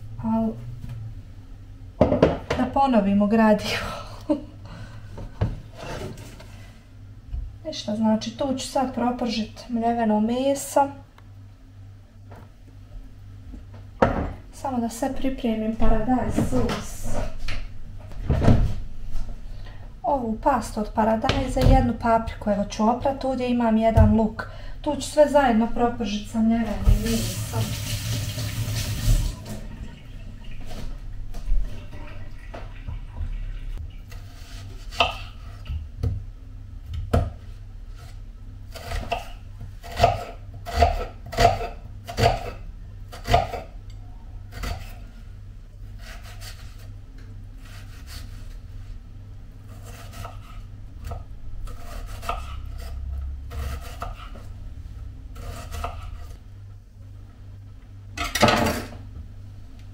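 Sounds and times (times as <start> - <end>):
knife chopping on wooden board: 34.9 - 35.4, 43.2 - 43.6.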